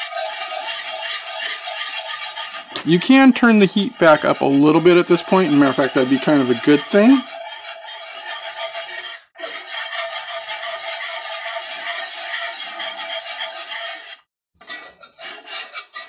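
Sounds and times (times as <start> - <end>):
whisk scraping a skillet: 0.0 - 16.0.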